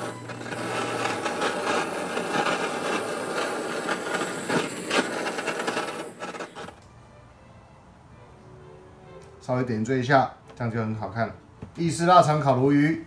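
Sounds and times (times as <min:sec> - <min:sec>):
blowtorch hissing: 0:00.0 - 0:06.8.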